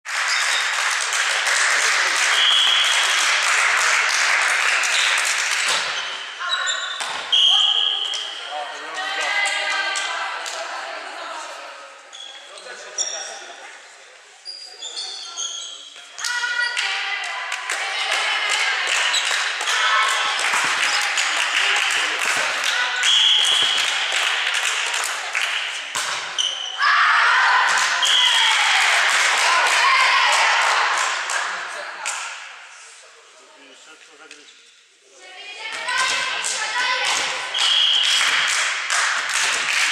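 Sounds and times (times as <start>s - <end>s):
hand clapping: 0.0s - 6.0s, 16.2s - 22.8s, 23.4s - 26.2s, 36.0s - 39.9s
referee's whistle blast: 7.3s - 8.3s, 37.6s - 38.2s
girls calling and cheering: 8.8s - 11.9s, 16.2s - 23.1s, 26.8s - 31.0s, 35.2s - 38.4s.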